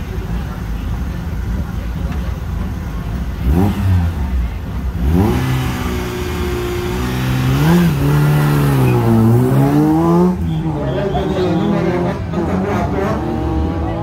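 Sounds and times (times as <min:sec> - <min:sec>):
rally car engine revving: 0:03.1 - 0:14.0.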